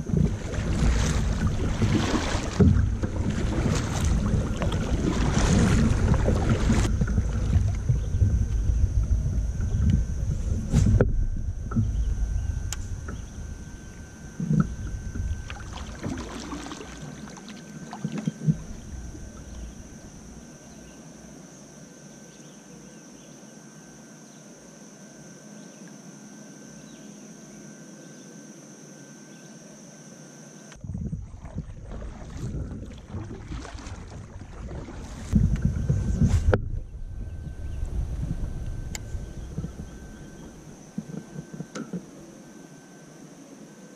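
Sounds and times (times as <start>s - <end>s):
paddle splashing and dripping: 0.0s - 20.5s, 30.8s - 36.8s, 37.5s - 42.1s.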